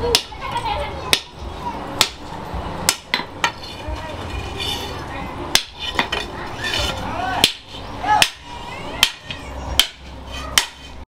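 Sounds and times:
hammer striking hot steel on anvil: 0:05.5 - 0:06.3, 0:07.4 - 0:08.4, 0:09.8 - 0:10.0, 0:10.6 - 0:10.9.

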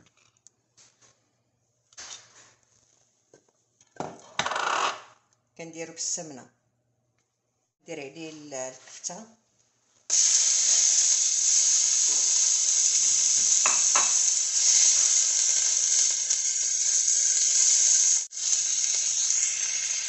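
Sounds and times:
meat sizzling in a pan: 0:10.1 - 0:20.0
spatula stirring in a pan: 0:11.9 - 0:16.1.

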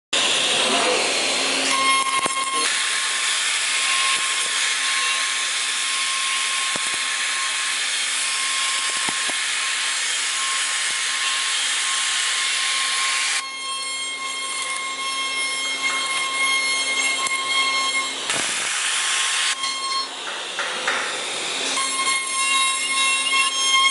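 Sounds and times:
router spindle whine: 0:00.2 - 0:23.9
hiss of wood being cut: 0:18.3 - 0:19.6.

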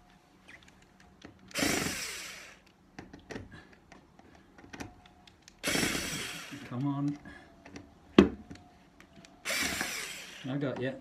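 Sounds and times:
bit and screw clicks: 0:00.5 - 0:07.9
cordless drill motor: 0:01.5 - 0:02.7, 0:05.6 - 0:07.8, 0:09.2 - 0:10.9.

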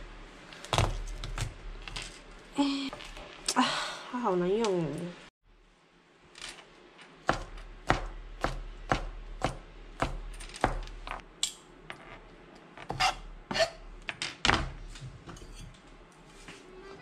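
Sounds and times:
knife chopping on plastic board: 0:07.2 - 0:11.1.

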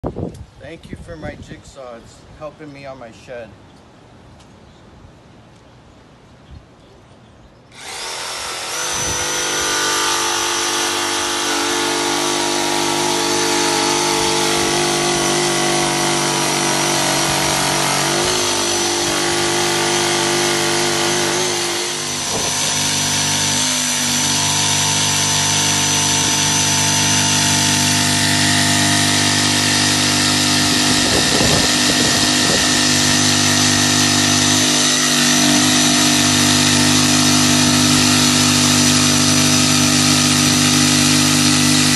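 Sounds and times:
jigsaw cutting wood: 0:07.8 - 0:41.9.

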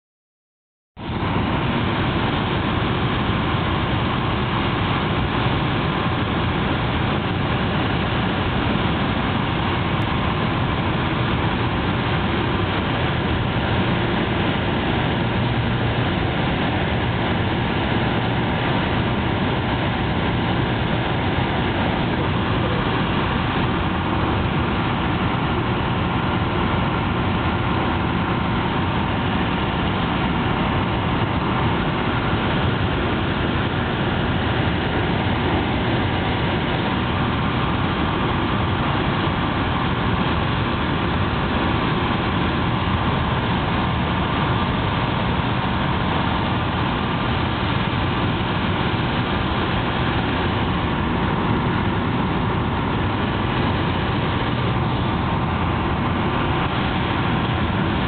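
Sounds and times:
aircraft engine and propeller drone: 0:01.0 - 0:58.0
airflow noise: 0:01.1 - 0:58.0.

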